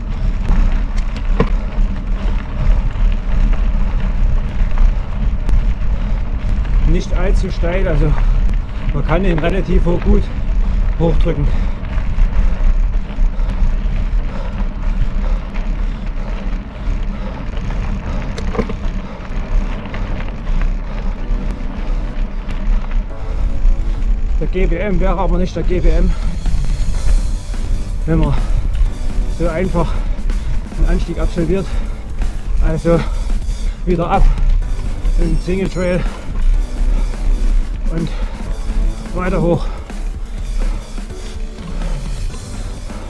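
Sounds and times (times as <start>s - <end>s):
bike tyres crunching over gravel: 0.0s - 43.0s
low rumble: 0.0s - 43.0s.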